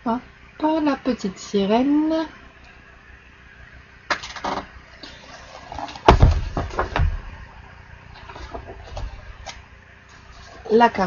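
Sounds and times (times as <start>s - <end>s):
book thuds: 6.0s - 7.4s
sharp knock: 6.1s - 7.2s.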